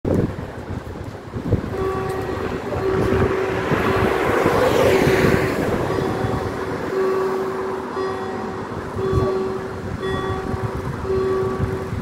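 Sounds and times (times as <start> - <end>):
car passing: 1.4 - 12.0
level crossing bells ringing: 1.7 - 4.8, 5.6 - 12.0.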